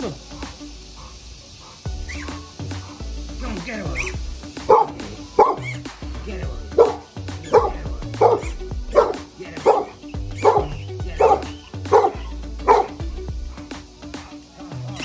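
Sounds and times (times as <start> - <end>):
large dog barking: 4.7 - 5.8, 6.8 - 13.0.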